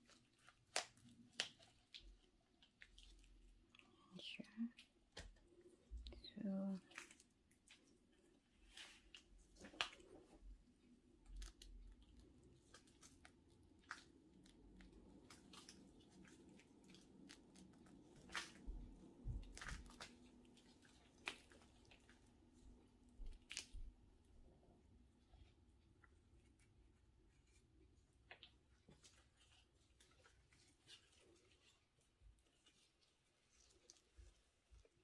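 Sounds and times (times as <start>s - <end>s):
soil and roots crunching: 11.2s - 22.3s.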